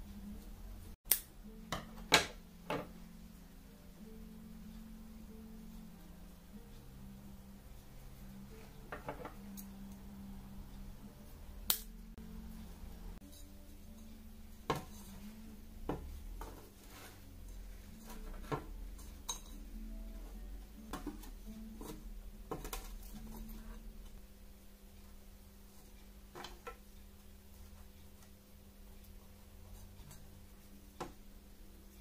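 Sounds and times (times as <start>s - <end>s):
low steady hum: 0.0s - 32.0s
scissors snipping roots: 1.1s - 1.3s.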